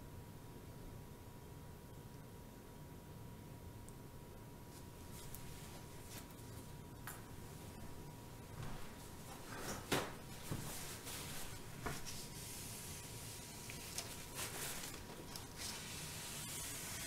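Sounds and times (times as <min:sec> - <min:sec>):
paper towel rustling and rubbing: 0:04.7 - 0:06.8, 0:08.5 - 0:17.0.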